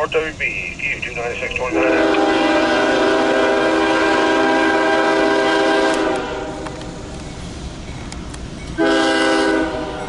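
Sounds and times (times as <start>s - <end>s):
approaching train noise: 0.0s - 10.0s
locomotive air horn chord: 1.7s - 6.6s, 8.8s - 10.0s.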